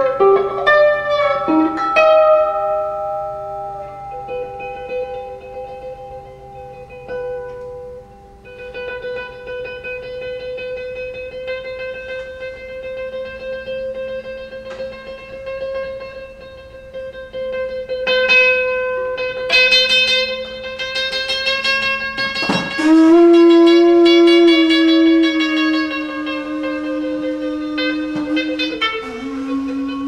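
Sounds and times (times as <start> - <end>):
metal tube chime ringing: 0.0 - 8.4
electric guitar notes: 0.0 - 30.0
conch shell horn blown: 22.2 - 30.0.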